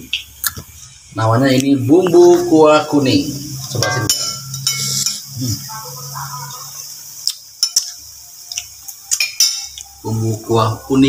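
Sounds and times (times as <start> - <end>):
paste sizzling in a wok: 1.9 - 11.0
metal utensil clinking dishes: 3.6 - 5.4, 7.2 - 10.0.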